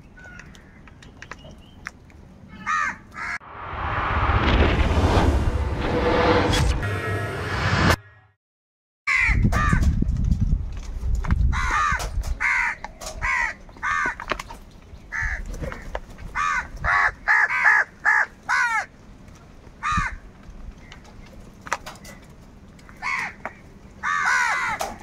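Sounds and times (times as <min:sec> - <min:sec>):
crows cawing: 0:00.2 - 0:01.0, 0:02.6 - 0:03.4, 0:09.1 - 0:09.8, 0:11.5 - 0:14.3, 0:15.1 - 0:18.9, 0:19.8 - 0:20.3, 0:22.8 - 0:25.0
low rumble: 0:03.4 - 0:08.0.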